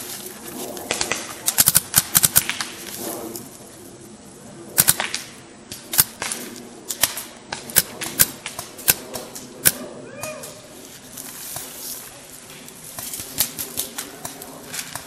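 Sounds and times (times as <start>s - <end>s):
paintball markers firing: 0.8s - 3.0s, 4.8s - 9.8s.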